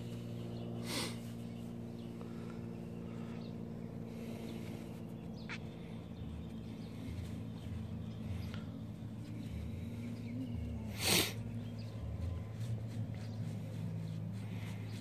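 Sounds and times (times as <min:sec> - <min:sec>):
steady low hum: 0:00.0 - 0:15.0
paper towel rustling: 0:11.4 - 0:15.0.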